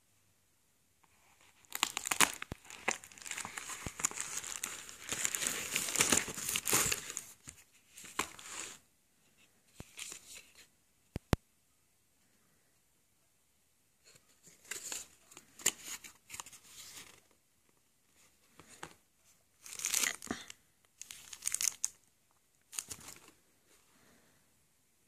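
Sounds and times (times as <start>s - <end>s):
plastic mailer crinkling: 1.6s - 8.5s, 22.7s - 23.4s.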